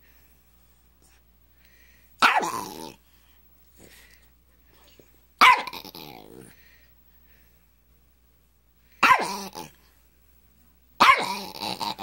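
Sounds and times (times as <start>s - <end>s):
small dog snarling barks: 2.2s - 3.0s, 5.4s - 6.6s, 9.0s - 9.8s, 11.0s - 12.0s.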